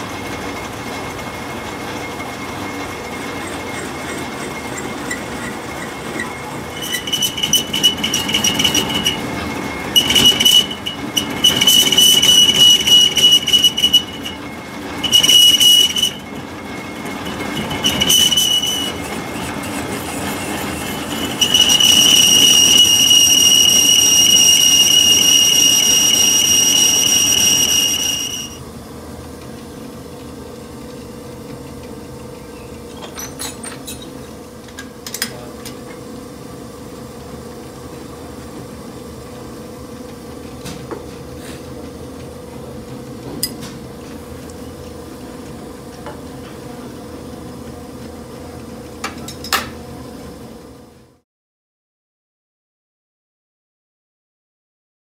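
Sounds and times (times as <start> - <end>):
low machine hum: 0.0 - 24.6
lathe tool cutting steel squeal: 0.0 - 28.6.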